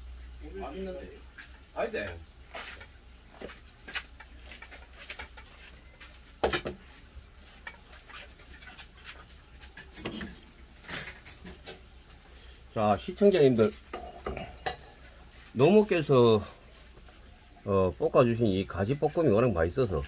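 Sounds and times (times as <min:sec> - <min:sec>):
dishes set down on wooden table: 0:06.4 - 0:06.8
metal dishes clinking: 0:09.8 - 0:11.8, 0:13.9 - 0:15.0.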